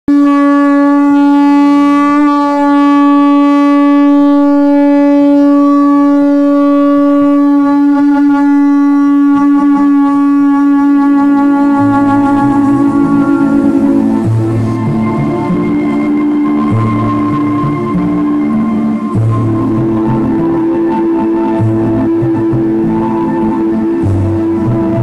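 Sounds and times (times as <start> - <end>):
low horn-like note: 0.1 - 25.0.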